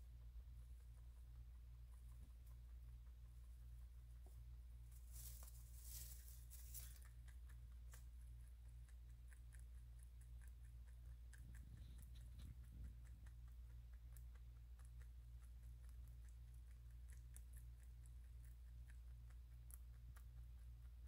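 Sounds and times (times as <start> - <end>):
low steady hum: 0.0 - 21.0
rabbit chewing hay: 0.0 - 21.0
hay rustling: 5.0 - 7.0.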